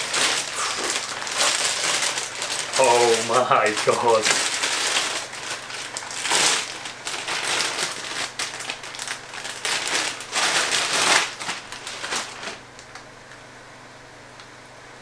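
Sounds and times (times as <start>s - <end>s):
plastic bag crinkling: 0.0s - 13.0s.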